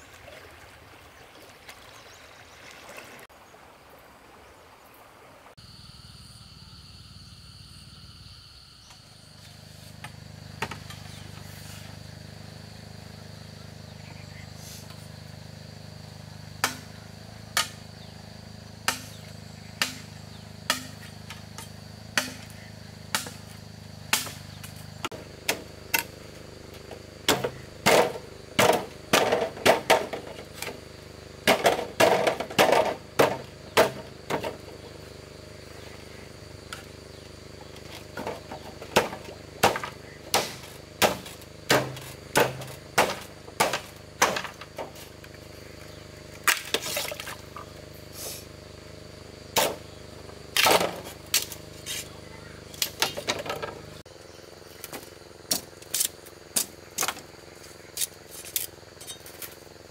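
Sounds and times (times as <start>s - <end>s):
hand tool striking: 19.8s - 20.1s, 20.7s - 22.5s.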